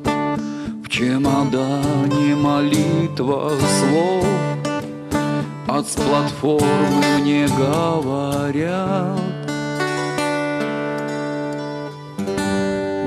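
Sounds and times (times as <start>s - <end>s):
acoustic guitar strumming: 0.0s - 13.0s
man singing: 0.1s - 9.8s.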